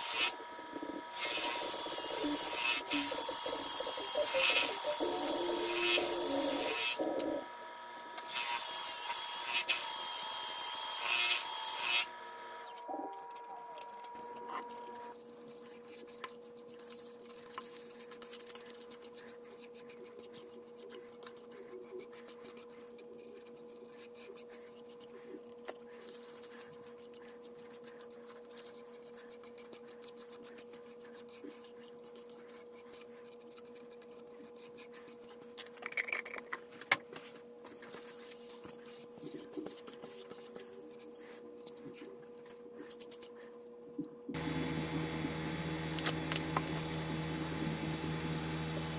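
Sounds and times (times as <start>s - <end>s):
sanding disc hissing on wood: 0.0s - 12.2s
lathe humming: 0.0s - 15.1s, 44.4s - 48.9s.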